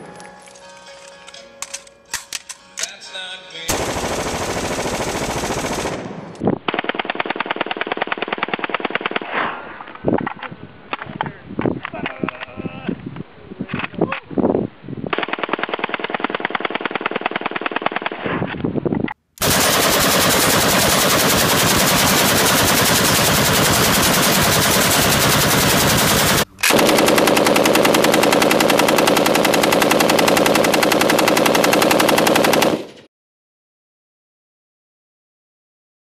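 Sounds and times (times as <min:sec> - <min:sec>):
automatic gunfire: 0:03.7 - 0:09.2, 0:19.4 - 0:33.1.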